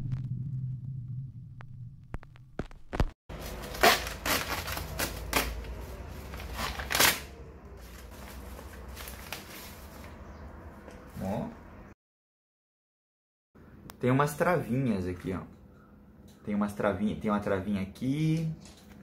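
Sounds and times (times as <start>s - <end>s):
paper rustle: 2.6s - 7.2s, 7.8s - 10.2s
paper envelope tearing: 3.3s - 9.9s.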